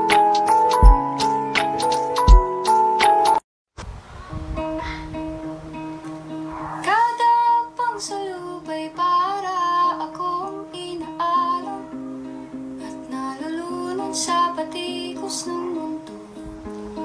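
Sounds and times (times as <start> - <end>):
guitar playing: 4.6 - 7.8, 9.0 - 17.0
person singing: 6.8 - 17.0.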